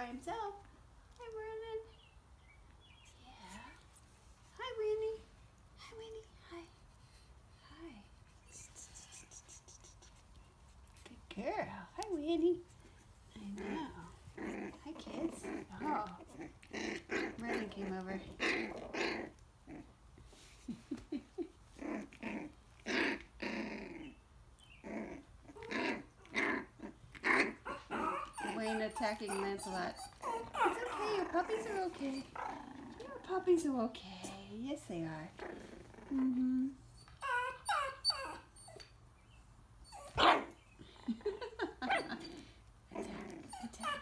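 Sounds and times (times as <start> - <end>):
puppies growling and yipping: 12.8 - 20.5, 21.6 - 33.4, 35.3 - 39.0, 39.8 - 44.0
puppy barking: 27.3 - 31.5, 40.1 - 40.6.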